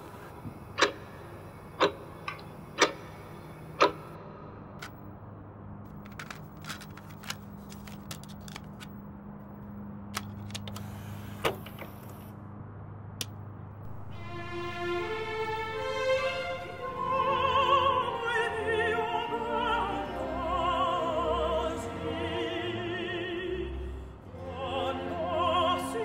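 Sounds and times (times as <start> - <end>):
clock ticking: 0.8 - 4.2
clicks of disc case handled: 6.0 - 9.0.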